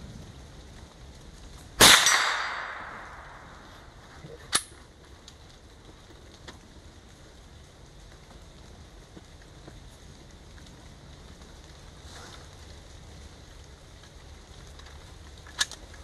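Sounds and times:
rifle shot: 1.8s - 3.8s.

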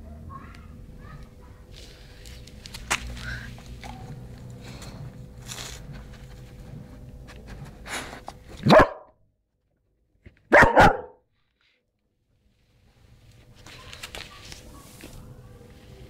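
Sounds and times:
dog barking: 8.6s - 9.1s, 10.5s - 11.2s.

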